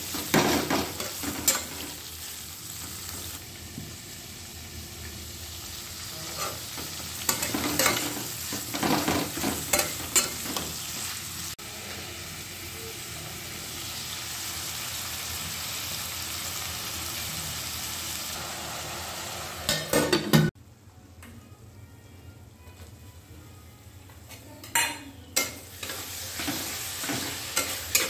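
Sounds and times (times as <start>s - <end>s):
onions sizzling in oil: 0.0s - 20.0s, 25.4s - 28.0s.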